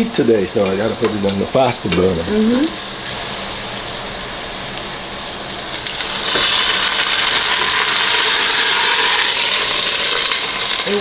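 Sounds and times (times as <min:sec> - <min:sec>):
meat sizzling in a pot: 0:00.0 - 0:11.0
broth pouring: 0:02.8 - 0:10.9.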